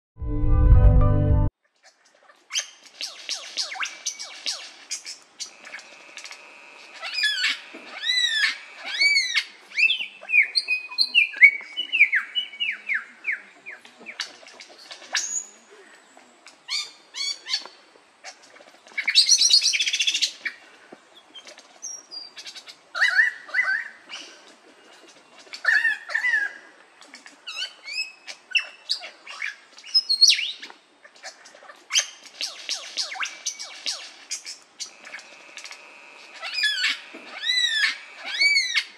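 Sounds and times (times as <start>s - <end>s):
harsh rasping bird call: 34.9s - 38.9s.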